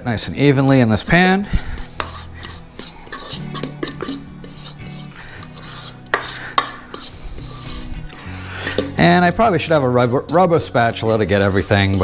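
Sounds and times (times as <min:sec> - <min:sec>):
background music: 0:00.0 - 0:12.0
fork scraping metal bowl: 0:00.4 - 0:12.0.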